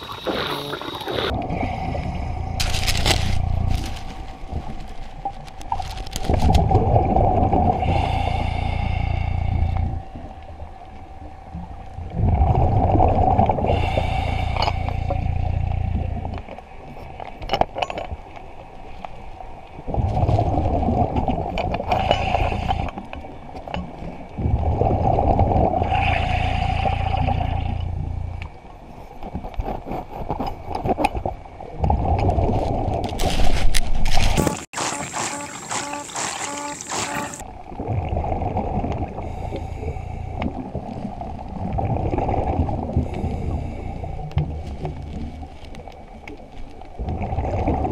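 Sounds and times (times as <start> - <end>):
exhaled bubbles underwater: 6.3 - 16.5, 19.8 - 23.4, 24.2 - 28.4, 34.3 - 47.9
diver breathing through regulator: 7.6 - 10.0, 13.6 - 15.8, 21.9 - 23.0, 25.8 - 27.8, 39.2 - 40.6.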